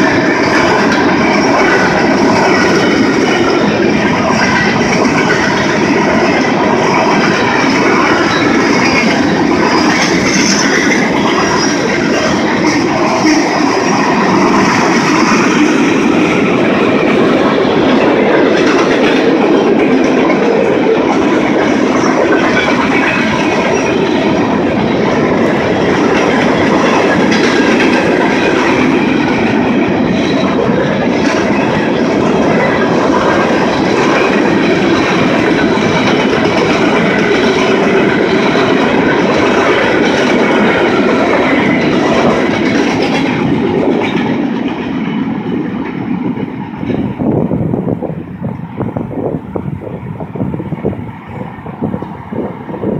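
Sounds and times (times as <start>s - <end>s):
train wheels on rails: 0.0s - 52.9s.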